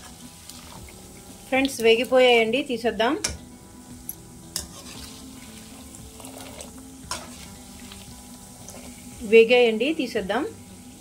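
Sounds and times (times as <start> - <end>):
nuts deep-frying in hot oil: 0.0 - 11.0.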